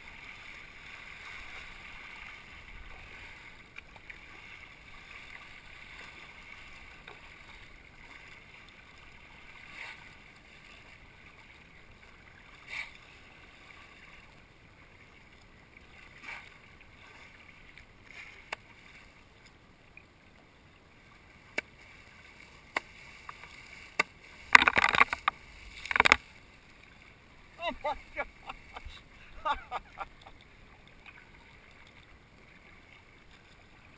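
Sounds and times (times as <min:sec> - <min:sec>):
paddle splashes: 0:00.0 - 0:19.6, 0:20.9 - 0:33.9
water lapping around kayak: 0:00.0 - 0:33.9
white water splashing: 0:21.0 - 0:33.9.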